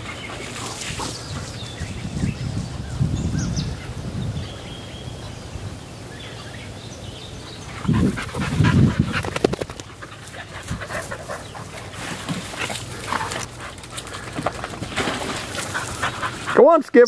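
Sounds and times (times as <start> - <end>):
dog panting and snuffling: 7.7 - 14.8, 15.4 - 16.6
sharp rustling and clicking: 8.5 - 16.5.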